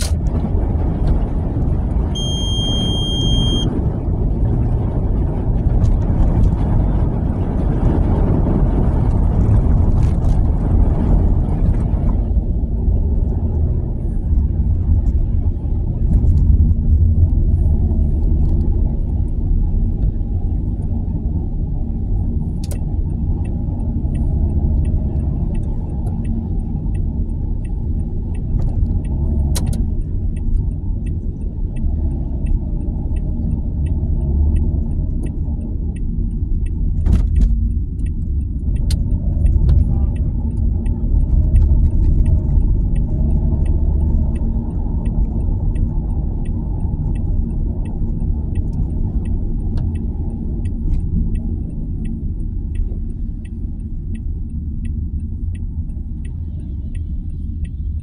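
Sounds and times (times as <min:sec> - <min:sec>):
car rumbling: 0:00.0 - 0:58.0
faint regular ticking: 0:22.2 - 0:58.0.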